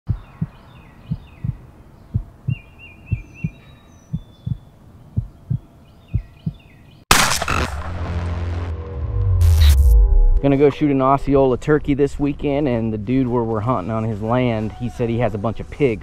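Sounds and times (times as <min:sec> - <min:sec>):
heartbeat thumps: 0:00.1 - 0:04.6, 0:05.2 - 0:06.6
birds chirping: 0:00.1 - 0:07.0
sudden loud burst: 0:07.1 - 0:10.7.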